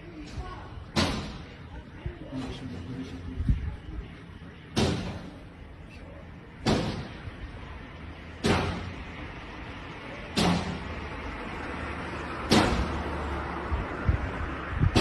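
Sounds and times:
heavy blows banging a door: 0:04.7 - 0:05.4, 0:06.6 - 0:07.3, 0:08.4 - 0:09.1, 0:10.3 - 0:11.0, 0:12.4 - 0:13.2.

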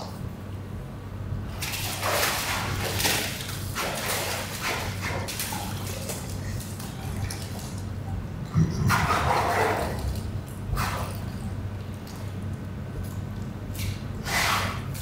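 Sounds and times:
water splashing and sloshing: 0:01.4 - 0:15.0
low hum: 0:05.8 - 0:14.2.

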